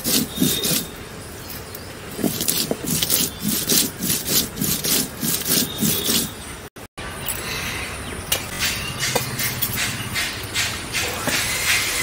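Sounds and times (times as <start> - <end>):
stone roller grinding on stone slab: 0.0 - 1.0, 2.2 - 6.4.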